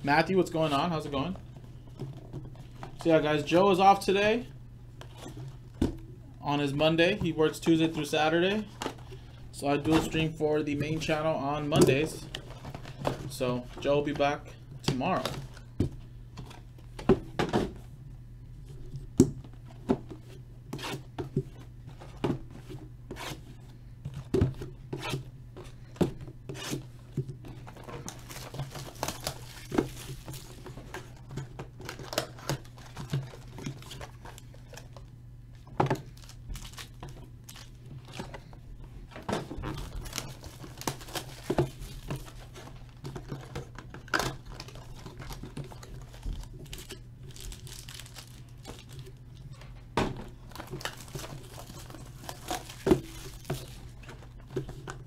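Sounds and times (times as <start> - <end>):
steady low hum: 0.0 - 55.0
wrapped packs crinkling: 27.6 - 38.6, 39.5 - 49.3, 50.3 - 54.8.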